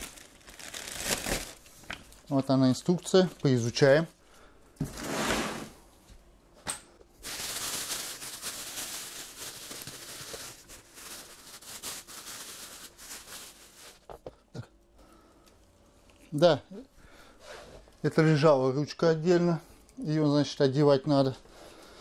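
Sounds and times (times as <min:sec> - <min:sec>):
plastic wrapping crinkling: 0:00.0 - 0:03.8, 0:07.2 - 0:14.2.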